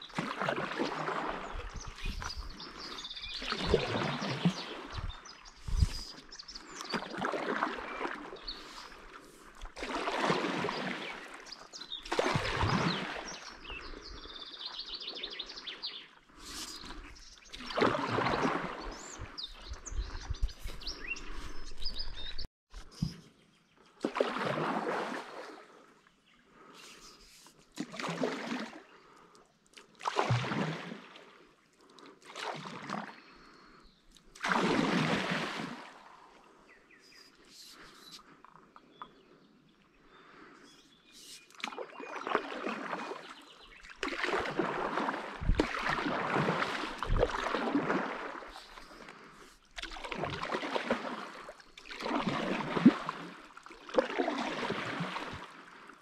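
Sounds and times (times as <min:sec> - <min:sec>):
paddle splashing through water: 0:00.0 - 0:23.2, 0:24.0 - 0:26.0, 0:26.6 - 0:38.3, 0:40.2 - 0:56.0
birds calling and singing: 0:01.3 - 0:09.4, 0:10.6 - 0:24.0, 0:36.6 - 0:44.0.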